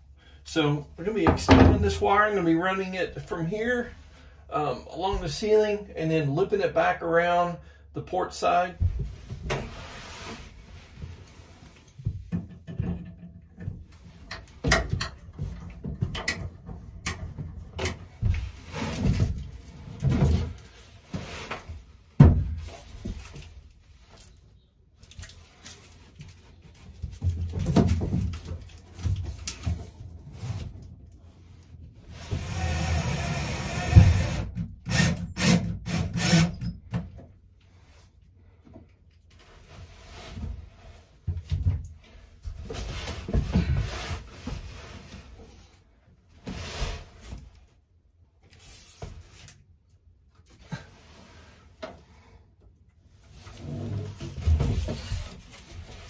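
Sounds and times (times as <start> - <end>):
rubbing and rustling of wiring: 8.9 - 32.8, 37.5 - 56.0.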